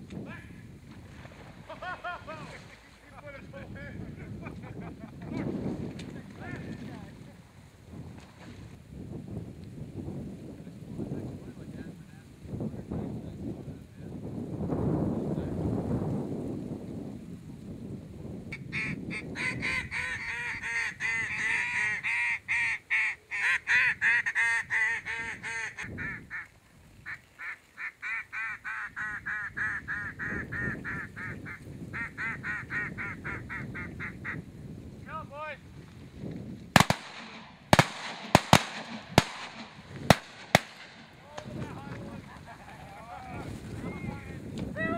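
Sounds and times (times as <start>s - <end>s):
geese honking: 18.5s - 26.5s, 27.1s - 34.4s
shotgun shots: 36.8s - 41.5s.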